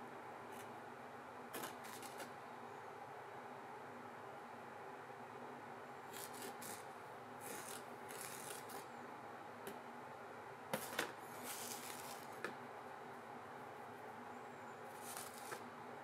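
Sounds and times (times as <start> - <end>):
powder pouring rustling hiss: 10.8 - 12.4.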